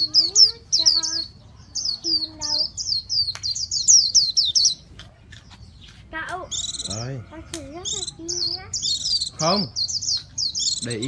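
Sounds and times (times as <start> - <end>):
bird singing rapid high notes: 0.0 - 11.0.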